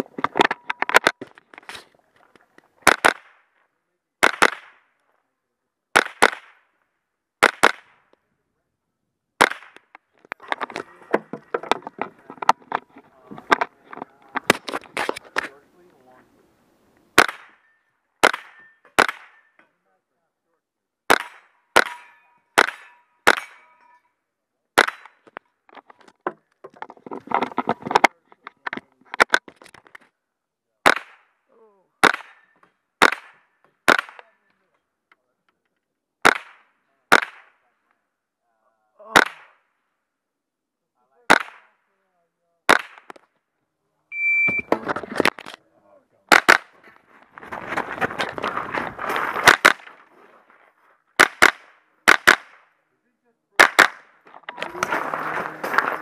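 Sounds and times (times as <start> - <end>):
rustling and clattering: 10.1 - 15.6, 25.2 - 30.0, 46.8 - 51.0, 54.2 - 56.0
steel targets ringing: 21.8 - 24.1
rifle shots: 51.2 - 52.6, 53.6 - 54.1.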